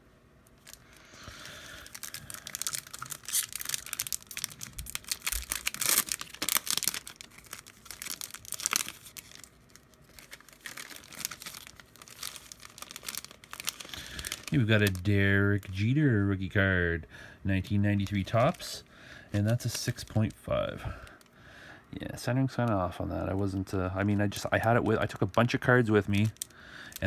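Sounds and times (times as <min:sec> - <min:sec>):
wrapper tearing and crinkling: 0:00.6 - 0:15.7, 0:17.9 - 0:20.4, 0:24.0 - 0:27.0.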